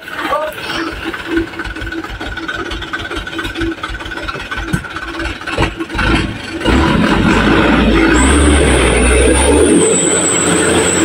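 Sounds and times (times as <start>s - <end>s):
truck engine running at low revs: 0.0s - 11.0s.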